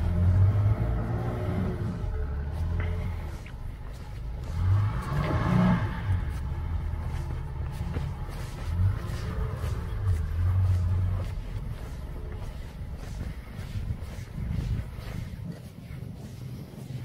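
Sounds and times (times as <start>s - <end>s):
car engine revving under load: 0.0s - 15.3s
tyres churning through snow: 0.0s - 17.0s.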